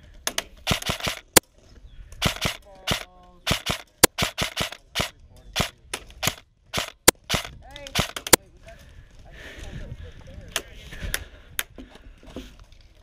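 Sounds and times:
airsoft rifle single shots: 0:02.2 - 0:08.4.

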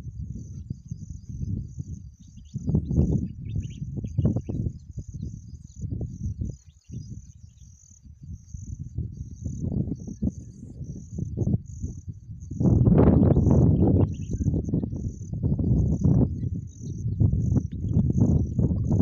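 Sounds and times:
crickets chirping: 0:00.0 - 0:19.0
wind gusting on microphone: 0:00.0 - 0:19.0.

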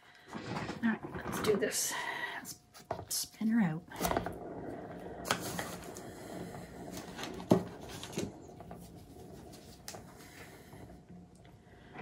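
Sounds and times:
turntable rumbling whir: 0:04.0 - 0:12.0.

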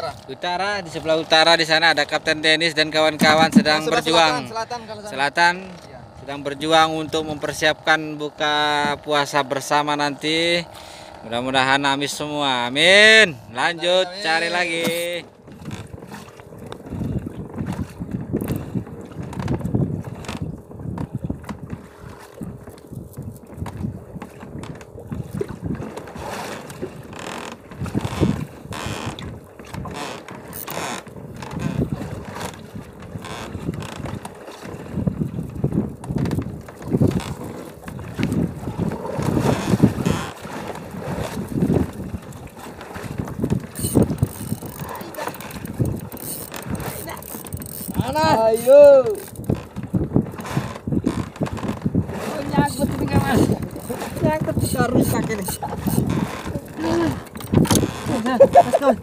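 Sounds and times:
wind buffeting the microphone: 0:00.0 - 0:07.9, 0:13.4 - 0:59.0
fishing reel gears ticking: 0:43.8 - 0:49.6.

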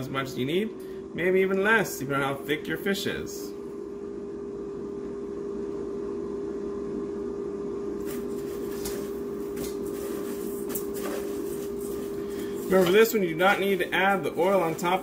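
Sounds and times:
air fryer fan hum: 0:00.0 - 0:15.0.

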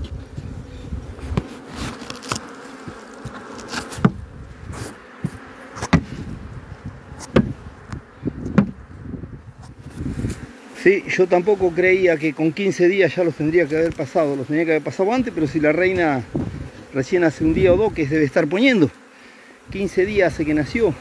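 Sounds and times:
honeybees buzzing: 0:00.0 - 0:21.0
wooden knocks of hive frames: 0:01.2 - 0:06.4, 0:07.1 - 0:08.9.

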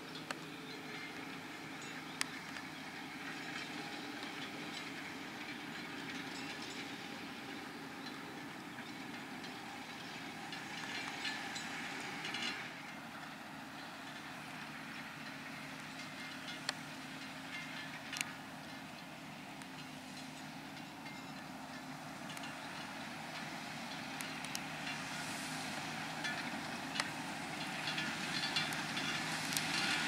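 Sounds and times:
tractor diesel engine under load: 0:00.0 - 0:30.0
plough clanking and rattling: 0:00.1 - 0:30.0.

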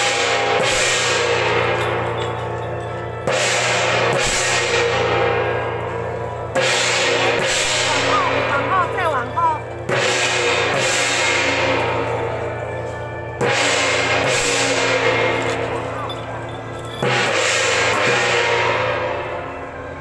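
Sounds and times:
gongs and cymbals crashing: 0:00.0 - 0:20.0.

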